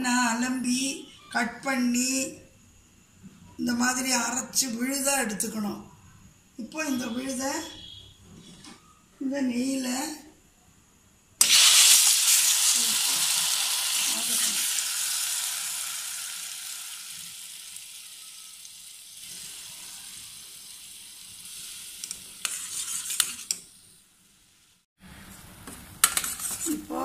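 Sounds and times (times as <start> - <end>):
paste sizzling in hot oil: 11.4 - 24.8
steel spoon scraping a pan: 21.5 - 23.8.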